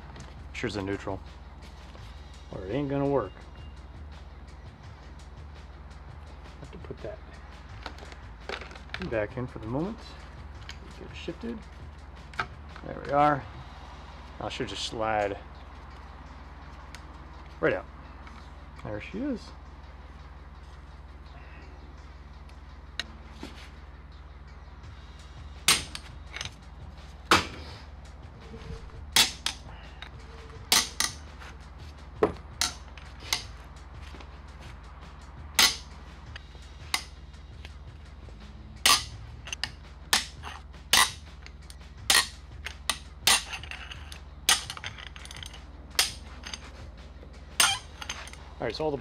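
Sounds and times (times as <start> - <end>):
bolts snapping loose: 25.7 - 26.6, 29.2 - 31.3, 35.6 - 37.8.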